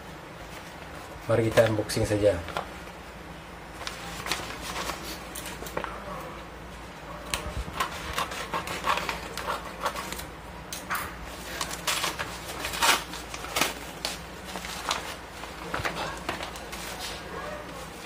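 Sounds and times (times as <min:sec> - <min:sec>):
paper crinkling and tearing: 0:03.8 - 0:05.9, 0:07.3 - 0:10.3, 0:11.3 - 0:18.0
scissors snipping paper: 0:07.3 - 0:10.9.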